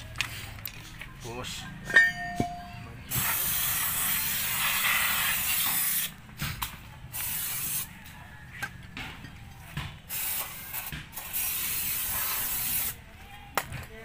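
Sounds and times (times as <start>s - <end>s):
aerosol spray can hissing: 3.1s - 6.2s, 7.1s - 7.9s, 10.1s - 13.0s.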